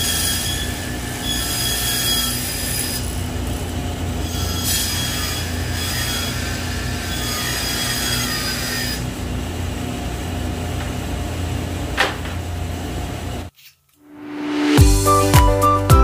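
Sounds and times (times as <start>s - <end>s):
saw blade cutting panel: 0.0s - 11.2s
table saw running: 0.0s - 13.5s.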